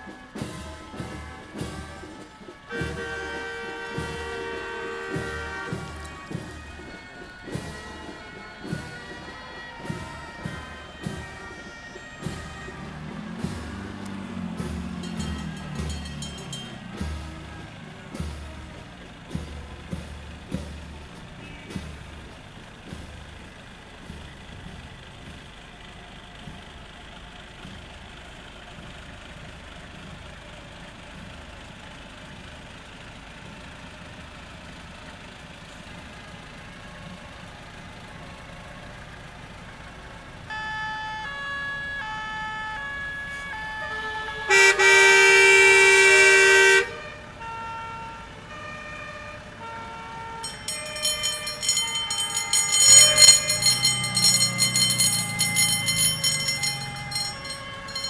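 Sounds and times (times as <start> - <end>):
fire engine sirens: 0.0 - 58.0
loud horn blast: 0.4 - 9.2, 43.2 - 48.2
two-tone siren: 0.4 - 16.6, 40.5 - 58.0.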